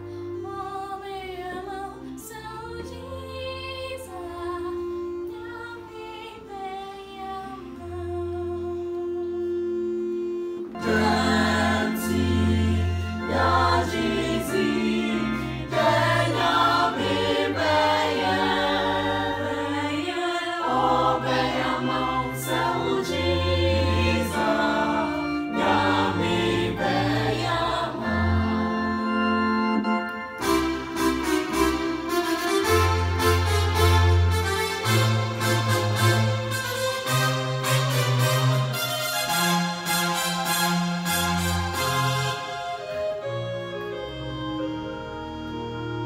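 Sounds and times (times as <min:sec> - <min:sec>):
choir singing a hymn: 0:00.0 - 0:32.1
electronic keyboard chords and bass: 0:09.6 - 0:38.9, 0:41.2 - 0:46.0.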